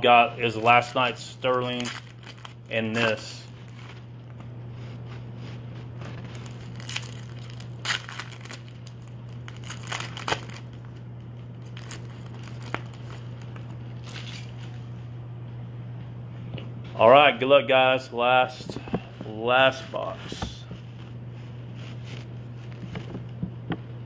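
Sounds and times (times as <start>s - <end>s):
steady low hum: 0.0s - 24.0s
foil wrapper crinkling and tearing: 0.5s - 14.8s.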